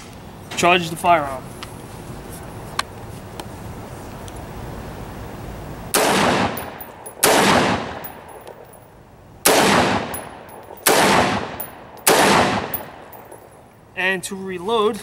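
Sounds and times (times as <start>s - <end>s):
rifle shots: 5.9s - 8.4s, 9.4s - 13.1s.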